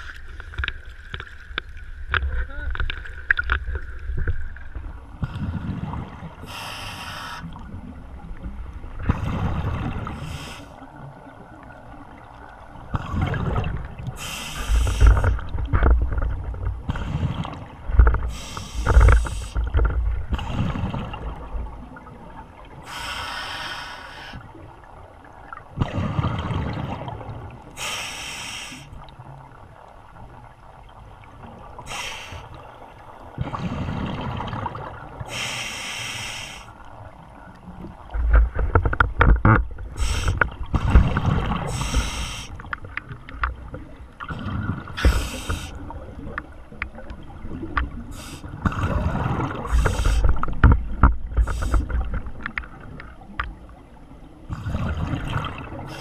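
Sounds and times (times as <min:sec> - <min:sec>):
underwater gurgling and rumbling: 0:00.0 - 0:56.0
hissing rush of bubbles: 0:06.4 - 0:07.7, 0:09.2 - 0:10.8, 0:13.0 - 0:15.4, 0:31.8 - 0:32.6, 0:40.0 - 0:40.4, 0:41.3 - 0:42.7, 0:44.3 - 0:46.0, 0:48.1 - 0:50.4.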